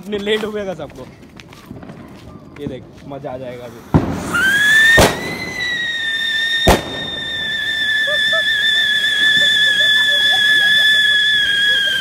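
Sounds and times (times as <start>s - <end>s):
firework fountain whistling: 3.4s - 12.0s
firecracker bang: 3.6s - 12.0s.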